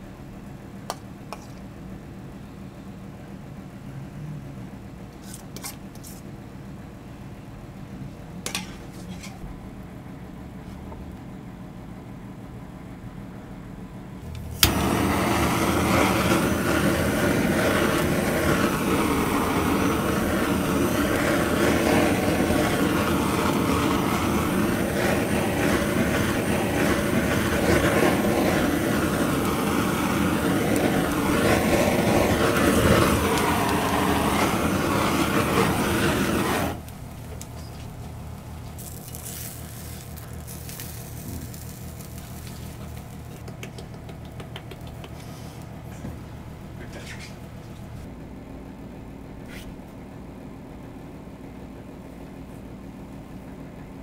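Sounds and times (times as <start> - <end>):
torch ignition click: 14.3 - 37.8
torch flame rushing: 14.4 - 43.5.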